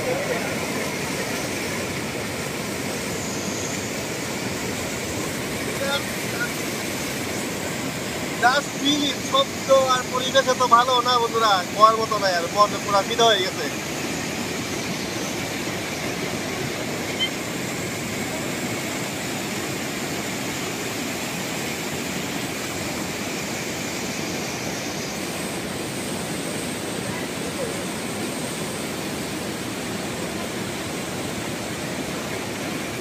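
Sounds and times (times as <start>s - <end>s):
water rushing over weir: 0.0s - 33.0s.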